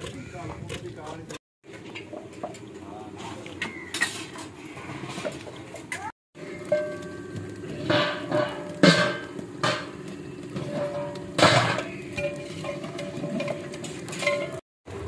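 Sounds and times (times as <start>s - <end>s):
scraping and stirring in pot: 0.0s - 14.6s
ladle clanging against pots: 6.6s - 14.6s.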